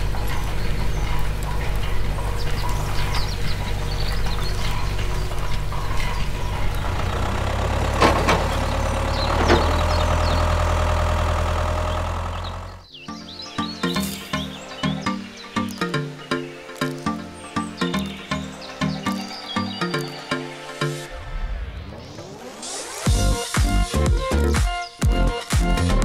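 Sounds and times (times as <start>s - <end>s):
tractor engine droning: 0.0s - 12.9s.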